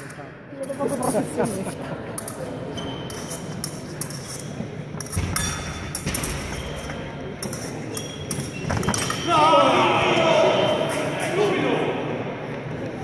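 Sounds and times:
fencing blades clinking: 2.2 - 9.3.

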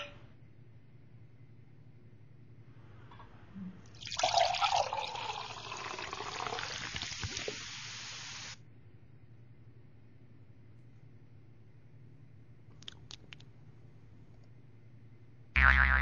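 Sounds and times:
liquid pouring into glass: 3.9 - 7.6.

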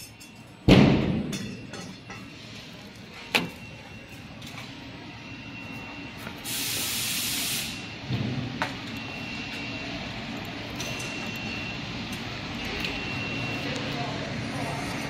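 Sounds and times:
steady machine hum: 0.5 - 15.0
compressed air hiss: 6.4 - 7.8.

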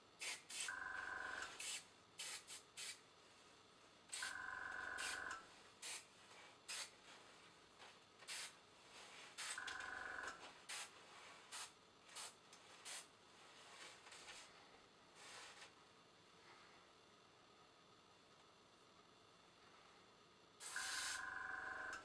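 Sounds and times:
airbrush spraying puffs: 0.2 - 0.7, 1.4 - 3.0, 5.0 - 7.0, 8.2 - 8.6, 9.2 - 9.6, 10.6 - 13.1, 20.6 - 21.2.

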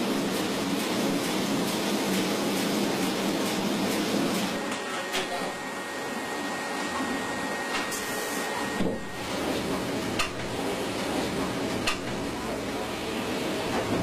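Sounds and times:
sharp clicks and knocks: 11.8 - 12.2.

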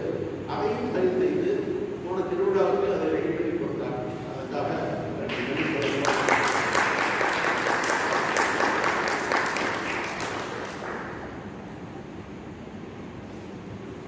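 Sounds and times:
audience applauding: 5.3 - 11.6.

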